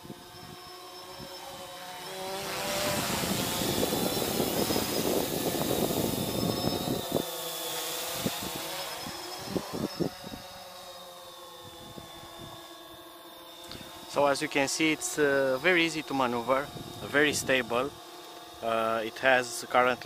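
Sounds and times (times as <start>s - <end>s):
quadcopter propellers buzzing: 0.0s - 20.0s
wind buffeting microphone: 2.6s - 7.4s, 8.0s - 10.5s, 11.6s - 12.6s, 15.6s - 18.0s.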